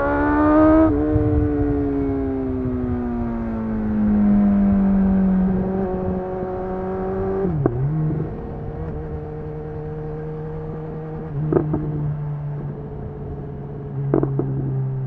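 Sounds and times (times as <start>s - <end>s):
motorcycle engine running: 5.0s - 15.0s.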